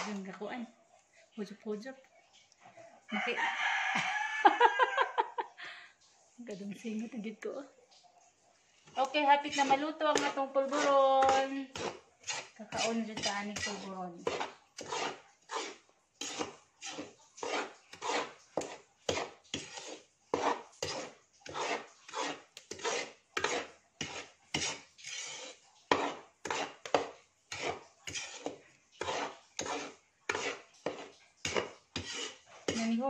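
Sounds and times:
spatula scraping metal pan: 0.0 - 0.4, 8.8 - 33.0.

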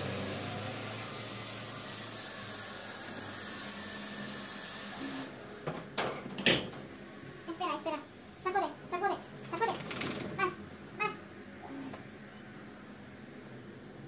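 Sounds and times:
water spraying from shower hose: 0.0 - 5.3
faint machine hum: 0.0 - 14.0.

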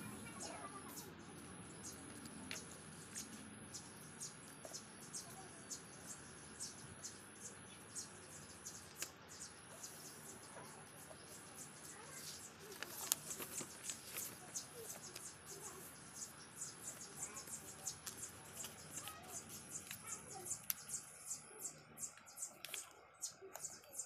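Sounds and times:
paper rustling and crinkling: 12.1 - 14.6.

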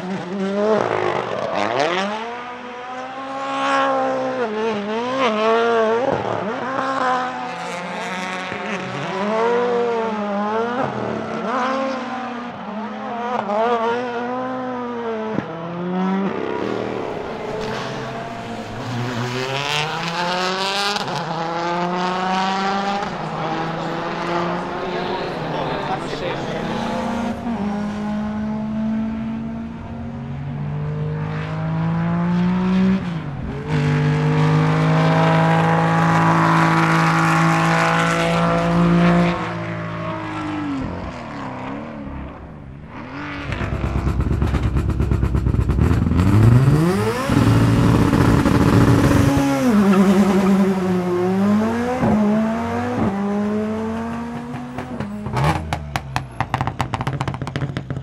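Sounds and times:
rally car engines revving: 0.0 - 58.0
car exhaust pops and crackles: 43.2 - 49.5, 54.0 - 58.0.

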